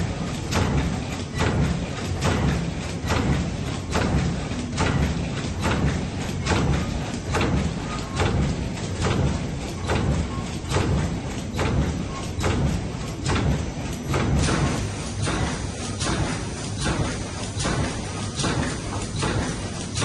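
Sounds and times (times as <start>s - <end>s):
machine rumbling: 0.0s - 20.0s.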